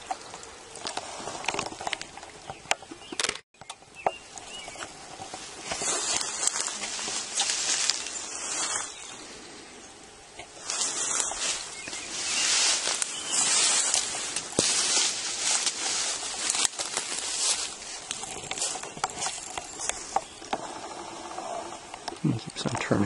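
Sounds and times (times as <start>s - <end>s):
undergrowth rustling and swishing: 4.4s - 9.8s, 10.4s - 21.1s.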